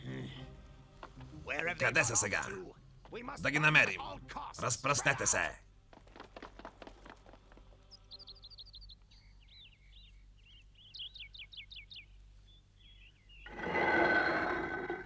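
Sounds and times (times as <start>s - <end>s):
cartoon birdsong chirps: 7.8s - 13.5s
boulder grinding scrape: 13.5s - 15.0s.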